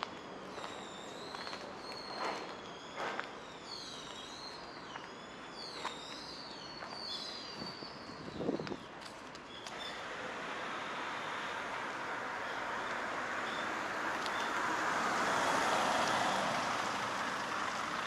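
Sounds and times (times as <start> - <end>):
small birds chirping: 0.0 - 10.1, 11.1 - 14.7
road traffic hiss: 0.0 - 18.0.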